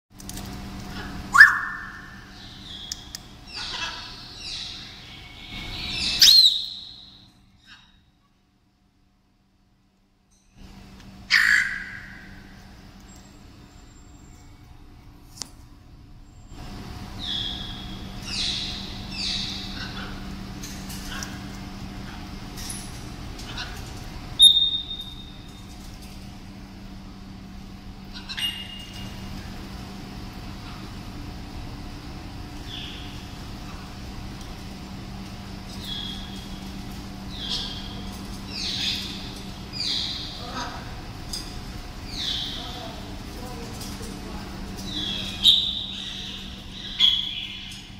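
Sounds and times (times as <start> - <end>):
faint steady hum: 0.2 - 47.9
parrot whistling and calling: 1.3 - 2.9, 3.5 - 7.2, 11.3 - 12.4, 17.2 - 20.2, 24.4 - 25.4, 45.0 - 47.8.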